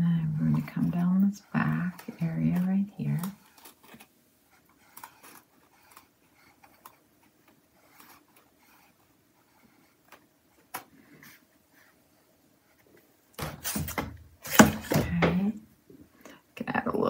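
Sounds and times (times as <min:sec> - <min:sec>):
brush scraping on canvas: 0:00.0 - 0:10.3.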